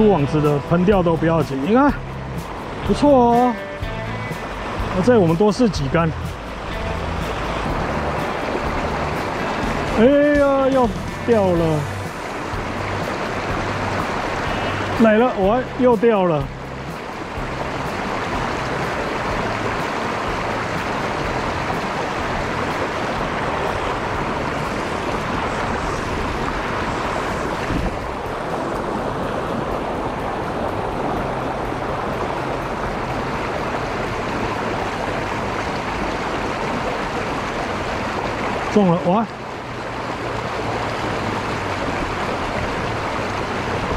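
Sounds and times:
creek rushing over stones: 0.0 - 43.9.

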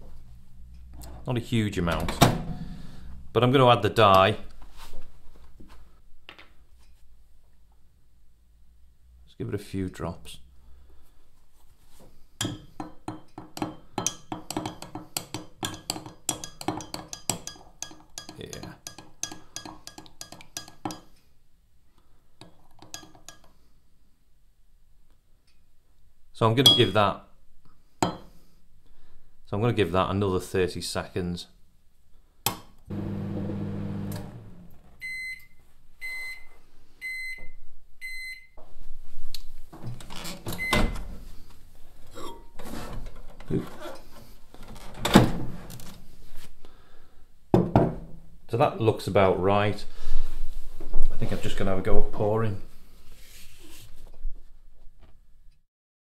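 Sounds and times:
metal utensil clinking against glass: 15.6 - 21.0
microwave oven humming: 32.9 - 34.8.

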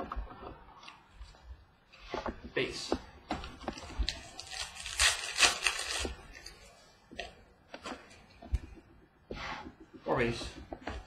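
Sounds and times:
wrapper tearing: 4.1 - 6.5.

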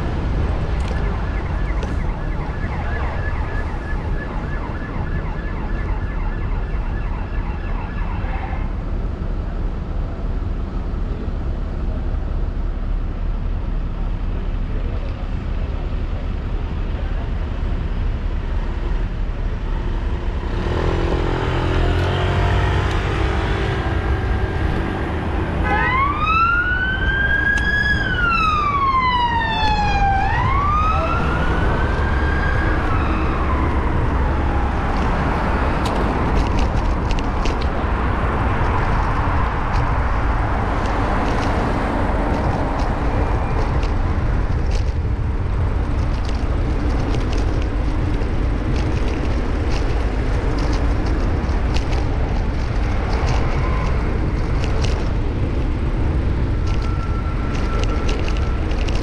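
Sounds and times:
traffic and wind rumble: 0.0 - 59.0
siren wailing: 0.4 - 8.8, 25.6 - 35.8.

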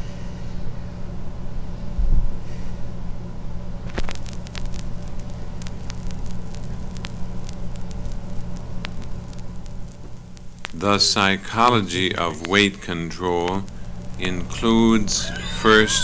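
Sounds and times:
steady hum: 0.0 - 16.0
vinyl crackle and pops: 3.3 - 16.0.

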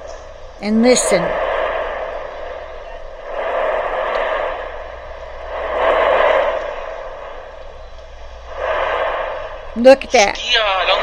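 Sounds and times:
volcano roaring: 0.0 - 11.0.

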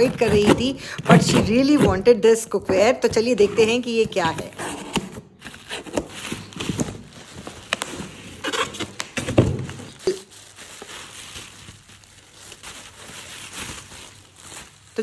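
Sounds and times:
cardboard scraping: 0.0 - 15.0
bubble wrap crinkling: 5.2 - 15.0.

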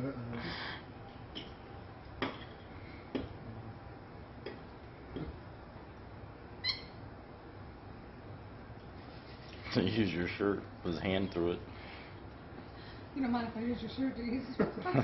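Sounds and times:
monkey squeak: 6.6 - 7.0.

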